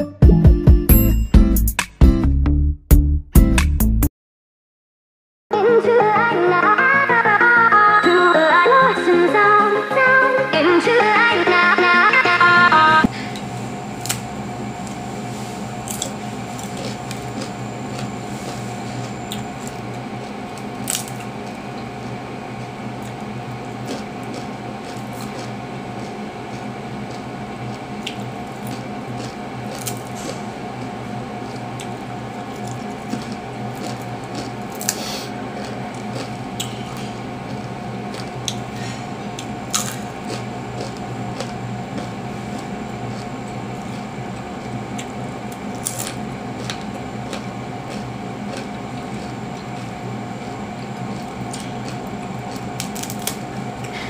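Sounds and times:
electric fan humming: 0:05.5 - 0:54.0
crispy fritter crunching: 0:15.8 - 0:38.7, 0:39.3 - 0:53.9.

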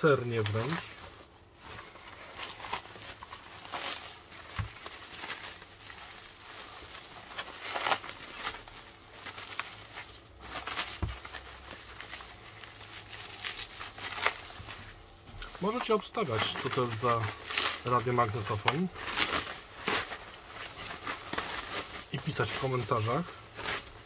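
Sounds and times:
plastic wrap crinkling: 0:00.0 - 0:24.0.

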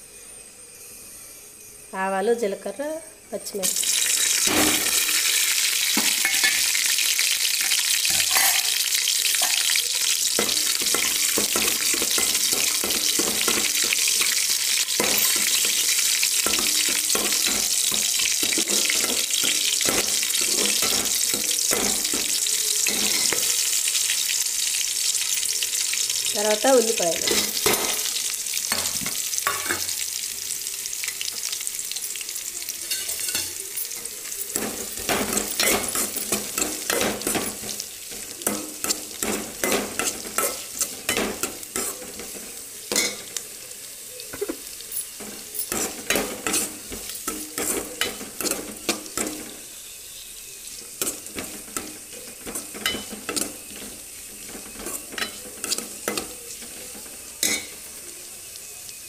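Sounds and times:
onions sizzling in hot oil: 0:00.0 - 0:59.0
ladle scraping and knocking pot: 0:44.4 - 0:49.5.

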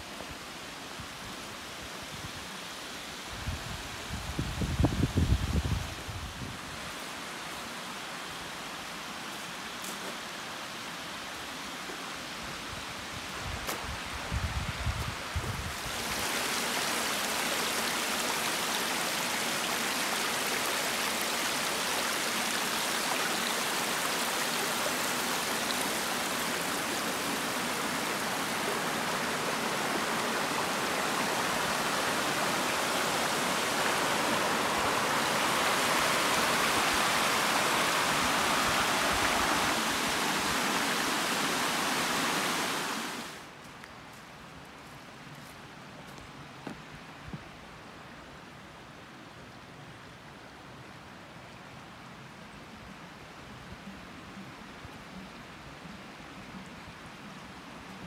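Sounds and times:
creek water rushing over rocks: 0:06.6 - 0:43.9.

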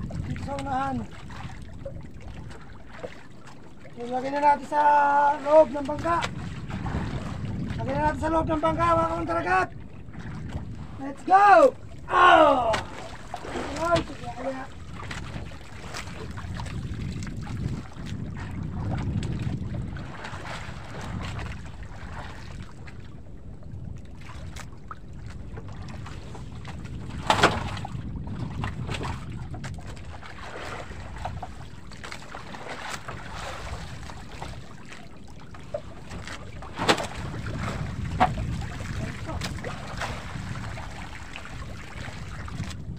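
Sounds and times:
water washing against boat hull: 0:00.0 - 0:42.9
wind on microphone: 0:00.0 - 0:42.9
knocks on boat: 0:12.7 - 0:14.3, 0:26.7 - 0:30.0, 0:36.0 - 0:39.8.

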